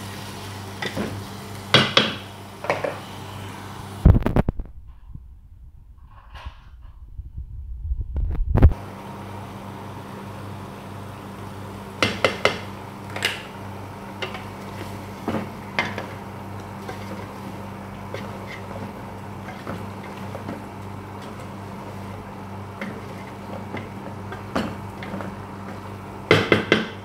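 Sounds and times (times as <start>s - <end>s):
steady low hum: 1.0s - 27.0s
brief low rumble: 4.0s - 8.8s.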